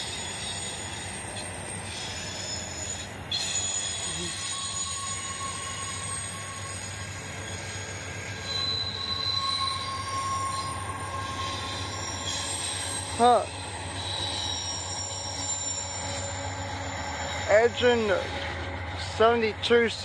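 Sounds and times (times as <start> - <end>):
thin wheel squeal: 0.0 - 19.8
freight train wheels rumbling: 0.0 - 20.0
higher whine: 4.1 - 20.0.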